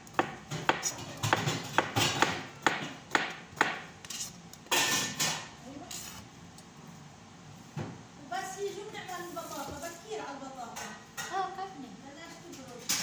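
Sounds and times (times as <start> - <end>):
knife chopping vegetables: 0.0 - 4.4.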